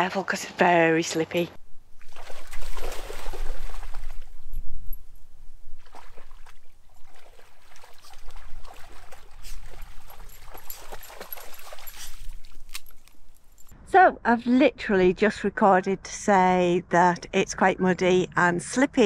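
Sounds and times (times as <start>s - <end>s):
dog splashing through shallow water: 2.0s - 4.3s, 5.8s - 13.0s.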